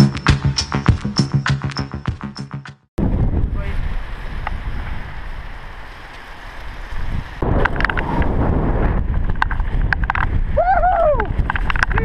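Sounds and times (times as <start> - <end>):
wind buffeting microphone: 3.0 - 12.0
bike tyres rolling on gravel: 3.1 - 12.0
bike clicks and rattles: 9.1 - 10.5, 11.3 - 12.0.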